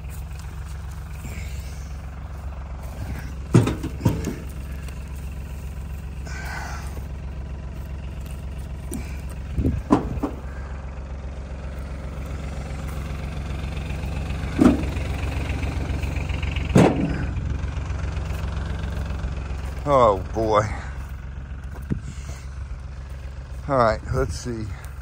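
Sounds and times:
engine idling: 0.0 - 25.0
short loud thumps: 9.7 - 10.4.

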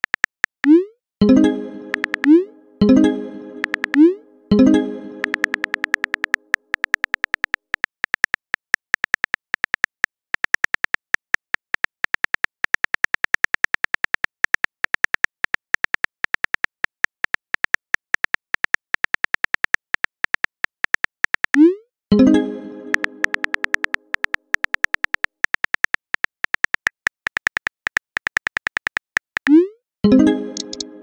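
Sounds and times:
phone keyboard tap clicks: 3.6 - 4.0, 5.2 - 12.5, 23.0 - 29.1.

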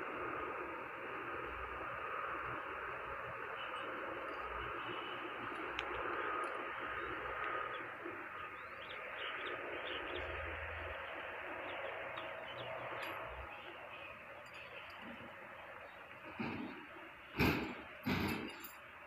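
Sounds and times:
birds chirping: 1.3 - 19.0.

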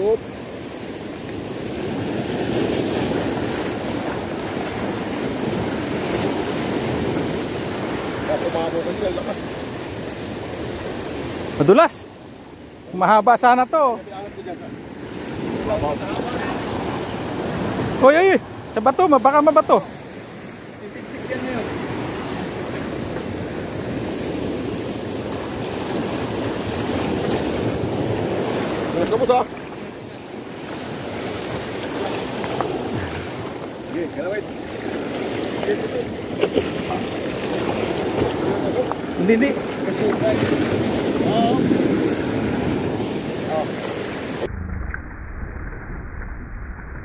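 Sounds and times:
surf breaking over rocks: 0.0 - 47.0.

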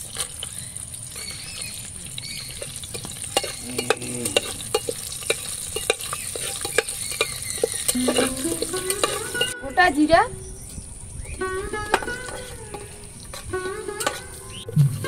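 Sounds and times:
spices sizzling in oil: 0.0 - 14.9
metal spoon scraping pot: 2.4 - 9.6, 11.8 - 14.8.

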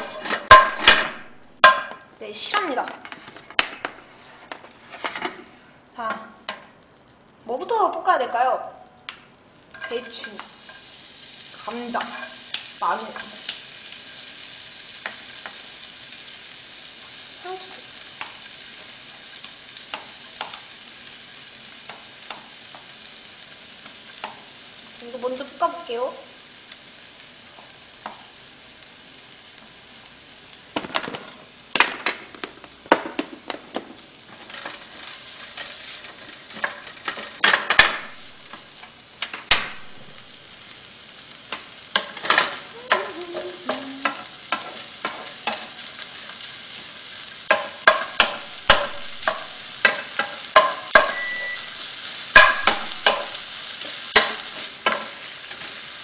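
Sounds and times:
wooden spatula scraping a pan: 0.0 - 1.0, 2.8 - 6.2, 34.3 - 37.8, 41.9 - 46.9
vegetables sizzling in a pan: 0.0 - 56.0.

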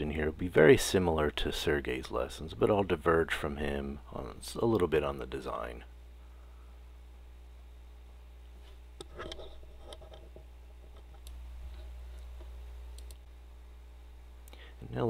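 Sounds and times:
low electrical hum: 0.0 - 15.0
keyboard clicks: 13.0 - 13.2.

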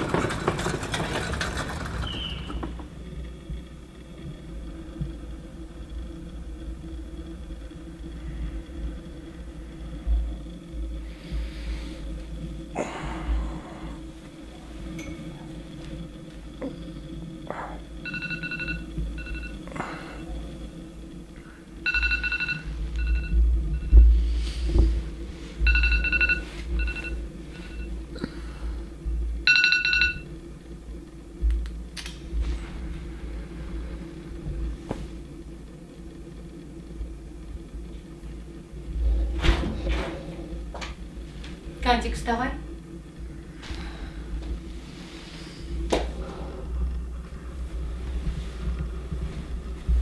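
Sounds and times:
low rumble: 0.0 - 50.0
electronic ringtone with beeps: 18.0 - 19.6, 21.8 - 24.0, 25.6 - 27.9, 29.4 - 30.3.

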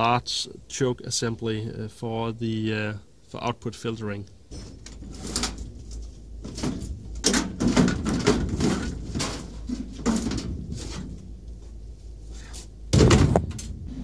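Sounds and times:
metal module scraping and clunking: 4.5 - 11.3.

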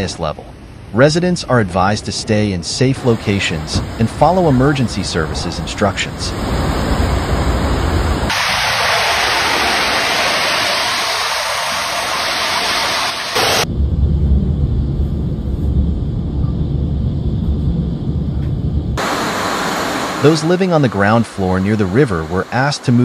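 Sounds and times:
floodwater rushing: 8.3 - 13.6, 19.0 - 23.0.

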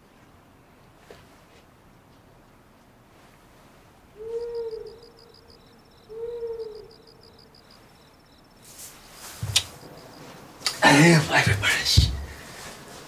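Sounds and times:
owl hooting: 4.2 - 10.4
crickets trilling: 4.2 - 12.4
cloth rustling: 8.6 - 10.6.

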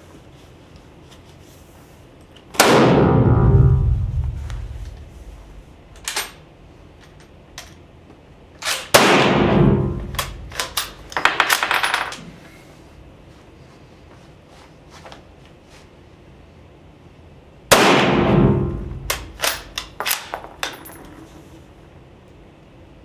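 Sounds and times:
rifle shot ringing in room: 2.5 - 6.4, 8.6 - 12.2, 17.7 - 21.0.

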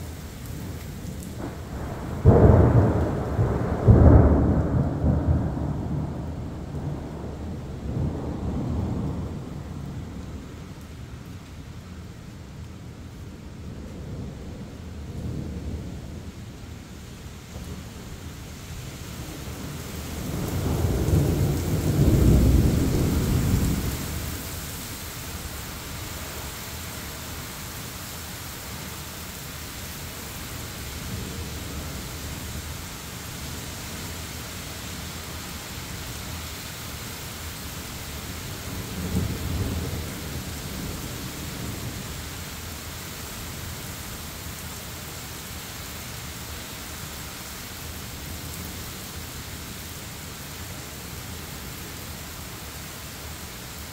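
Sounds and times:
steady rain: 0.0 - 53.9
thunder rumble: 0.5 - 10.5, 19.2 - 24.5.

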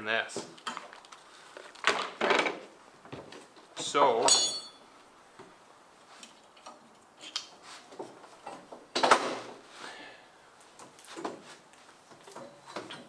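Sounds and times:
hard objects knocking and clanking: 1.8 - 3.4.

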